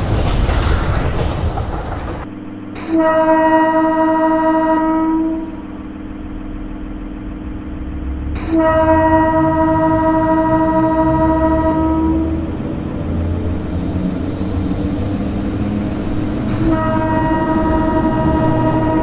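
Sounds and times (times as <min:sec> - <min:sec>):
train rumbling on tracks: 0:00.0 - 0:19.0
train horn blowing: 0:02.8 - 0:05.9, 0:08.4 - 0:12.6, 0:16.5 - 0:19.0.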